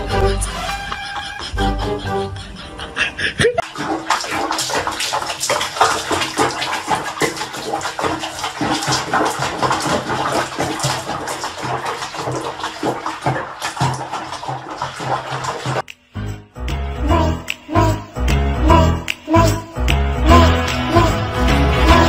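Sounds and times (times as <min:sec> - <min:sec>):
water sloshing and splashing: 0:03.6 - 0:15.9.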